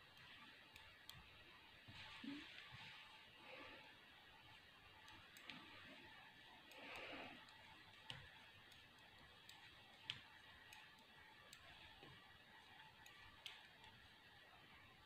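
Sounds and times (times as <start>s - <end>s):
knitting needles clicking: 0.0s - 1.6s, 4.9s - 14.4s.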